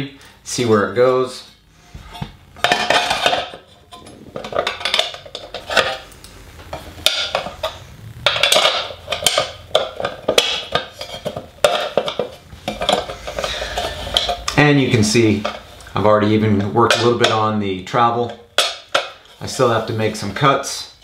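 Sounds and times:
metal plates clinking and scraping: 2.0 - 15.8.

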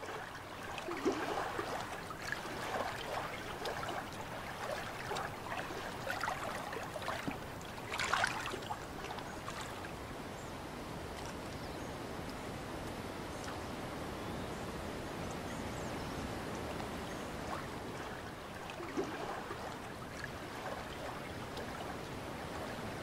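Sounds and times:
shallow water trickling: 0.0 - 10.0, 17.4 - 23.0.

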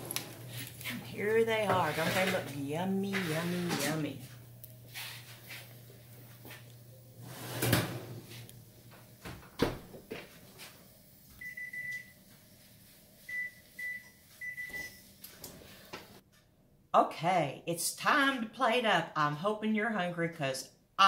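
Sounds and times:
oven humming: 0.0 - 16.2.

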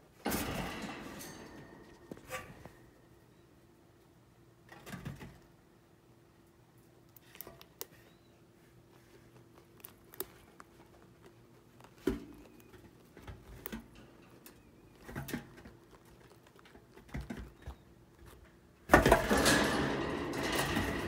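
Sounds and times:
chinchillas crunching seeds: 7.0 - 18.5.

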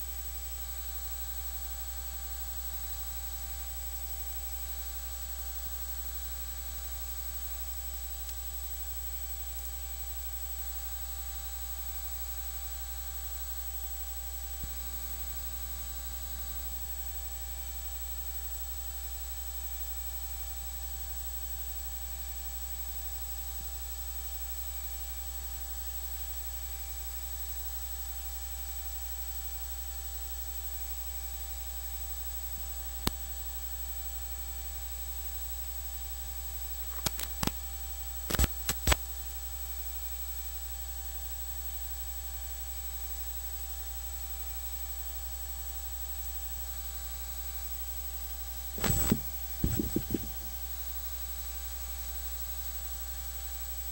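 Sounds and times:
electrical mains hum: 0.0 - 19.6, 36.6 - 39.1, 48.6 - 51.1
sharp clicks: 36.9 - 37.6, 38.3 - 39.0, 48.8 - 50.5.

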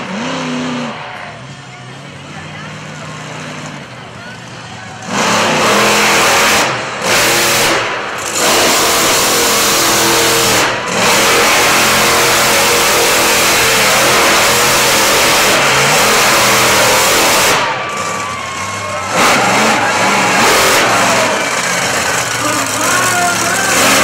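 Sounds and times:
monster truck engine revving: 0.0 - 24.0.

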